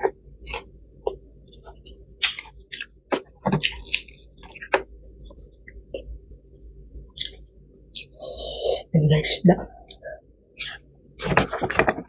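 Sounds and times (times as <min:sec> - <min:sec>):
fried chicken crackling and squishing: 0:01.8 - 0:05.0.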